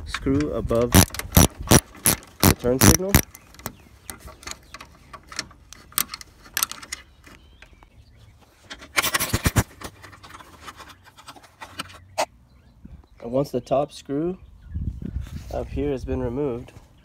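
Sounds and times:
ratchet wrench clicking: 0:00.8 - 0:03.4.

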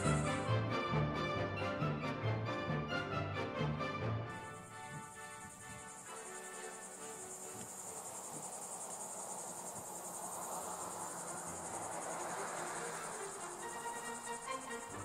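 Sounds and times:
high-pitched insect trill: 0:00.0 - 0:00.4, 0:04.4 - 0:15.0
soft rushing noise: 0:04.6 - 0:15.0.

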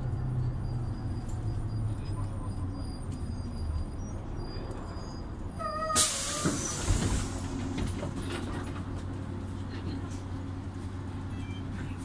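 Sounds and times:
bus engine humming: 0:00.0 - 0:12.0
short squeal: 0:00.4 - 0:07.2.

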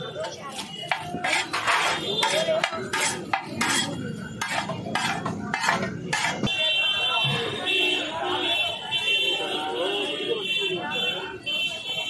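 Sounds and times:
metal spatula scraping iron pan: 0:00.5 - 0:06.5.

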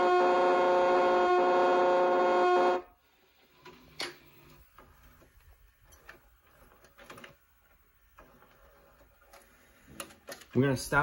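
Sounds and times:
faint vcr clicks: 0:03.6 - 0:10.9
droning tape noise from tv: 0:03.6 - 0:11.0.

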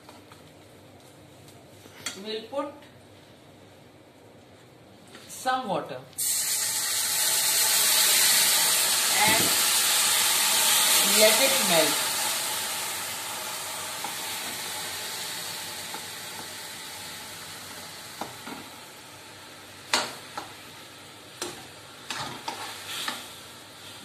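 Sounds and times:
sugar sizzling with a hiss: 0:06.2 - 0:24.0.

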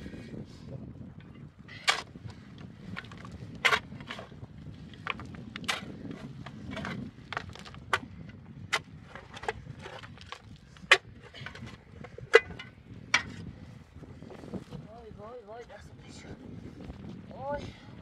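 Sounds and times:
shovel digging into stony soil: 0:02.9 - 0:04.4, 0:05.0 - 0:08.1.

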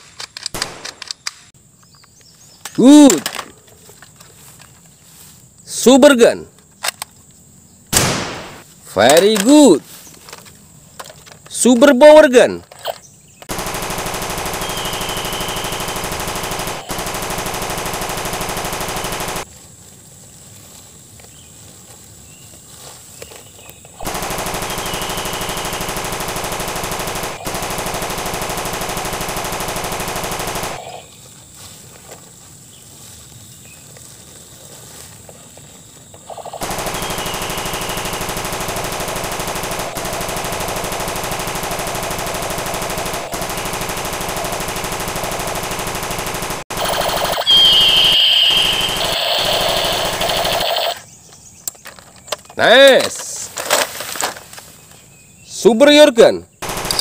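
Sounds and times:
machine gun automatic fire: 0:00.5 - 0:01.0, 0:08.0 - 0:08.6, 0:13.5 - 0:19.5, 0:24.0 - 0:31.0, 0:36.6 - 0:51.0, 0:56.6 - 0:57.0.

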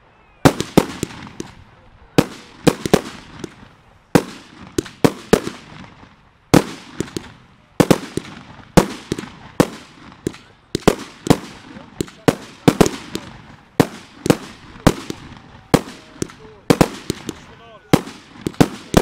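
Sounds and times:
fireworks bangs: 0:00.4 - 0:19.0.

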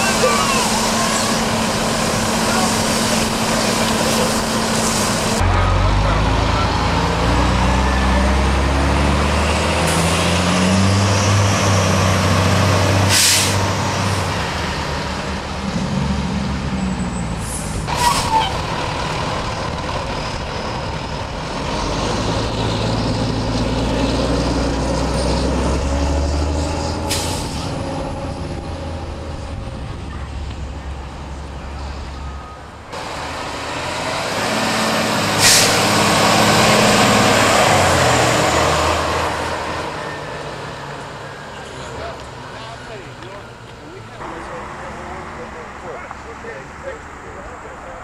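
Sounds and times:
diesel engines running: 0:00.0 - 0:48.0
air brakes hissing: 0:13.1 - 0:13.7, 0:17.4 - 0:18.6, 0:26.9 - 0:27.8, 0:35.3 - 0:35.9.

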